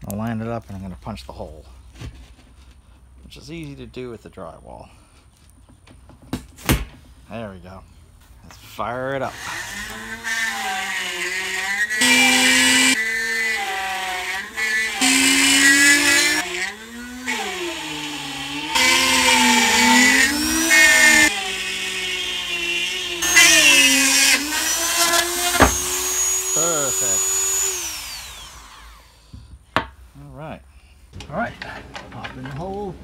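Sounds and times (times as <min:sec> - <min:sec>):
rotary tool whining cutting drywall: 0:09.3 - 0:29.4.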